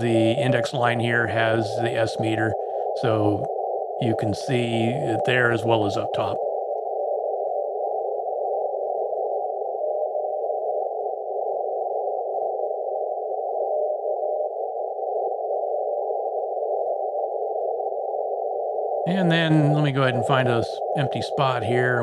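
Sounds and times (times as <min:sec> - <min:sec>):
faint morse code tones: 0:00.0 - 0:03.5
radio band noise hiss: 0:00.0 - 0:06.4, 0:19.1 - 0:22.0.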